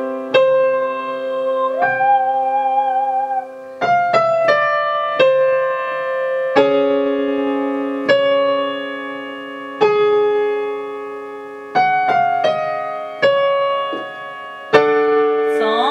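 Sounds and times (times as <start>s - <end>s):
digital piano chords: 0.0s - 15.9s
woman singing vowel with vibrato: 1.0s - 3.6s, 15.5s - 15.9s.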